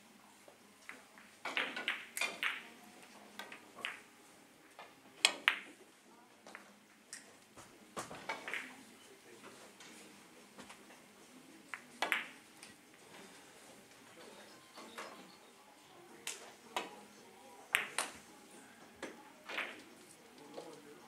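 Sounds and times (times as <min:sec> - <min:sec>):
billiard balls clicking: 0:00.8 - 0:02.7, 0:03.4 - 0:04.1, 0:05.2 - 0:05.7, 0:08.2 - 0:08.7, 0:11.7 - 0:12.7, 0:17.7 - 0:18.2.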